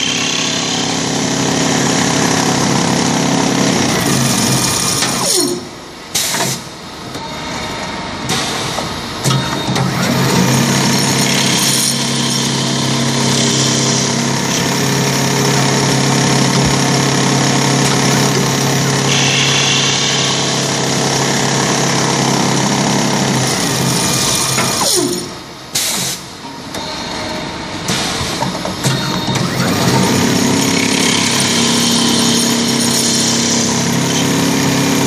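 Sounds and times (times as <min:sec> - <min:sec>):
lathe motor hum: 0:00.0 - 0:05.2, 0:09.9 - 0:24.8, 0:29.0 - 0:35.0
cutter shaving wood: 0:09.9 - 0:19.2, 0:29.0 - 0:35.0.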